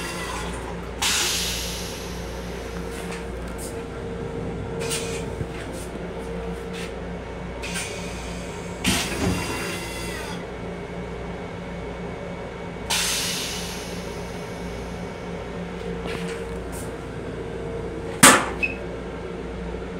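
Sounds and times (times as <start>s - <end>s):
train rumble and hum: 0.0s - 19.9s
air hissing: 1.0s - 3.8s, 12.9s - 15.0s.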